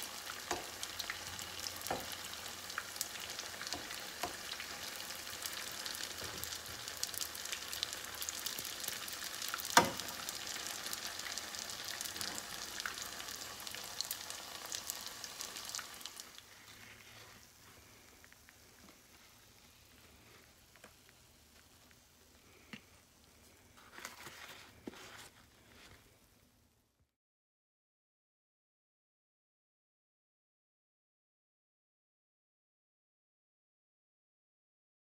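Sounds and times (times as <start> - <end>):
oil sizzling and crackling: 0.0 - 26.8.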